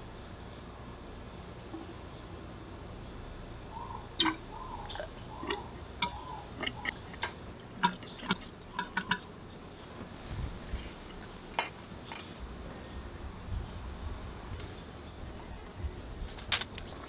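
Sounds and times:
metal tools clinking: 0:11.5 - 0:12.4.

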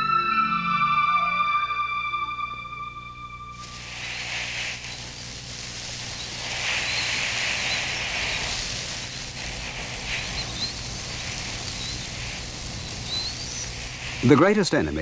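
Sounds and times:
music: 0:00.0 - 0:04.2
sand pouring hiss: 0:03.5 - 0:15.0.

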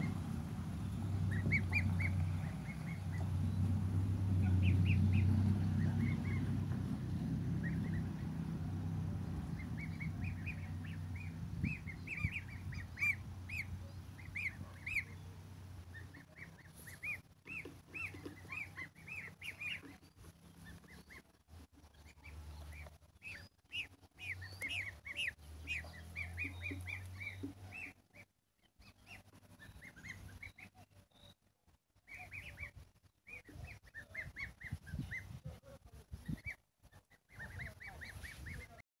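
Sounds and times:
low engine drone: 0:00.0 - 0:23.0
small birds chirping: 0:00.0 - 0:38.8.

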